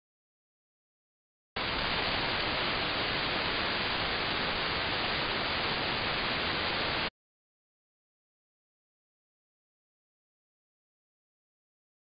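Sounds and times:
radio receiver hiss: 1.6 - 7.1.

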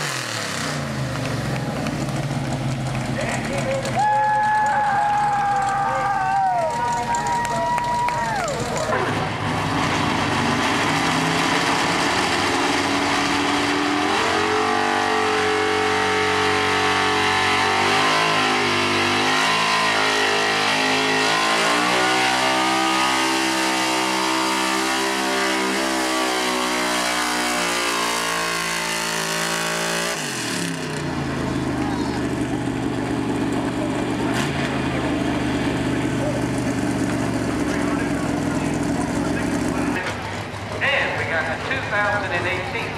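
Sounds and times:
truck engine at full throttle: 0.0 - 42.9.

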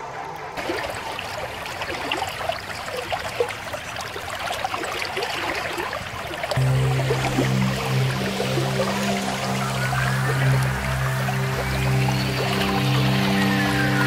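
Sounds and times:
water trickling and bubbling: 0.5 - 14.0
music with low notes: 6.6 - 14.0.

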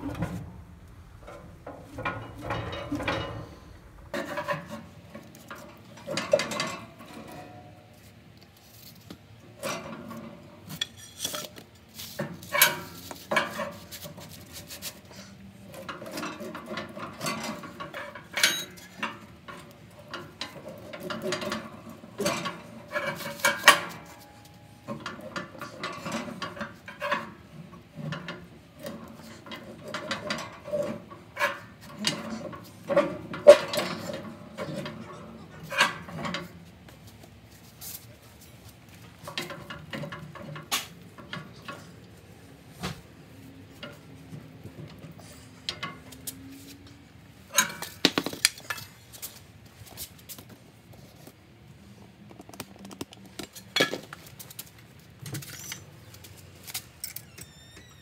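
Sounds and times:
heavy steel door hinges creaking: 0.0 - 7.5, 57.0 - 58.0.

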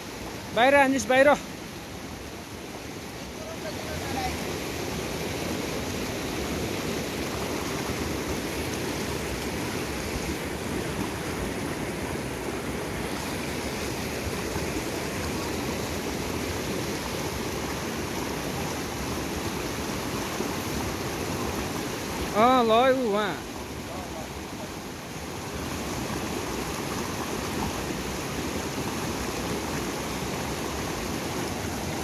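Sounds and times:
river rushing over boulders: 0.0 - 32.0.

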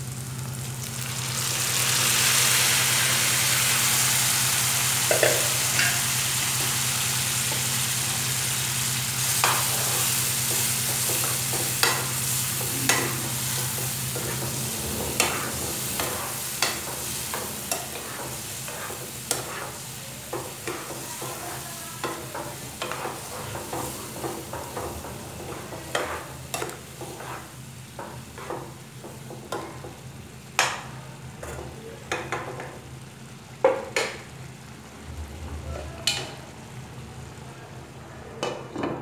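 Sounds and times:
sizzling hiss: 0.0 - 31.0
spoon scraping pan: 9.4 - 28.8.

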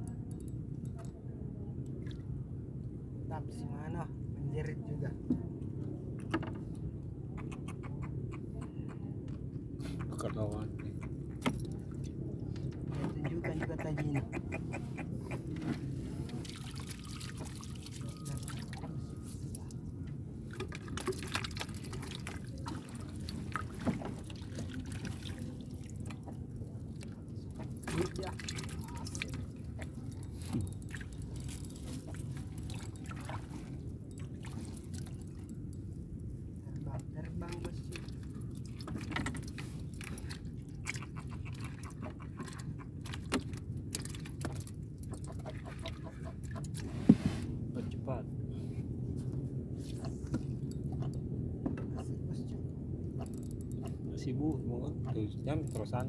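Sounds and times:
water lapping against boat hull: 9.8 - 47.5
steady low rumble: 18.7 - 56.0.

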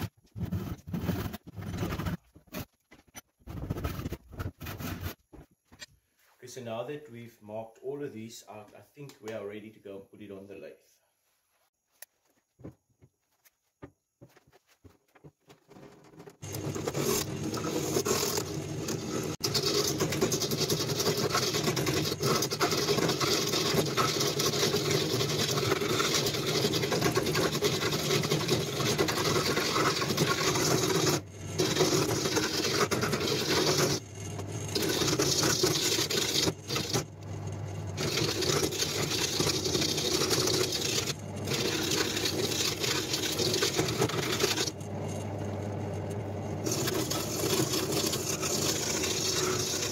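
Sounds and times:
tool cutting into wood: 16.4 - 37.1, 38.0 - 44.8, 46.6 - 49.9
woodworking machine motor humming: 25.6 - 49.9.

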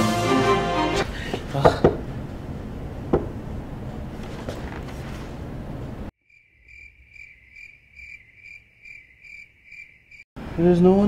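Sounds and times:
music: 0.0 - 1.0
cricket chirping: 6.2 - 10.3.

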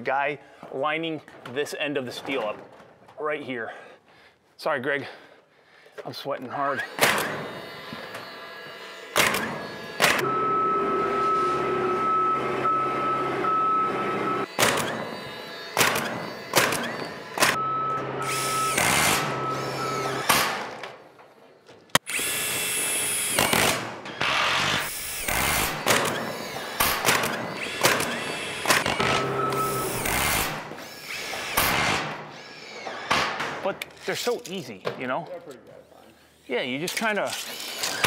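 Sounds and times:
screw gun whirring: 6.5 - 10.2, 14.4 - 17.6, 18.2 - 20.6, 21.9 - 34.1, 37.2 - 38.0.

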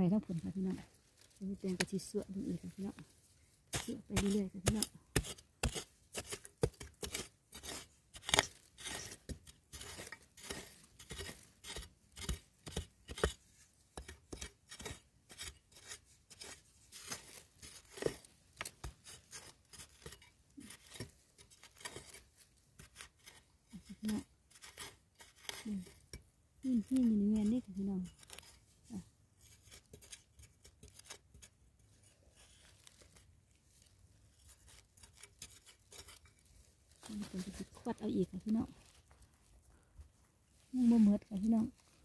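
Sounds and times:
spade chopping into stony soil: 3.7 - 13.4, 14.0 - 21.1.

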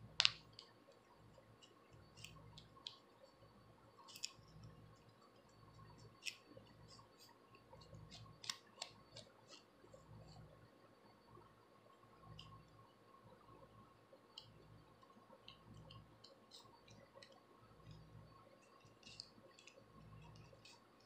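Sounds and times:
comb scratching scalp: 18.7 - 20.9.

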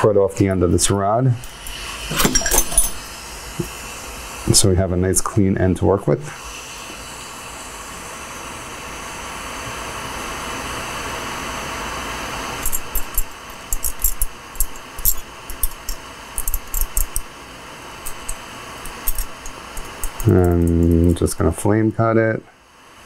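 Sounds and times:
torch flame hissing: 1.4 - 4.8, 6.2 - 21.5
sharp clicks and taps: 18.1 - 21.1.

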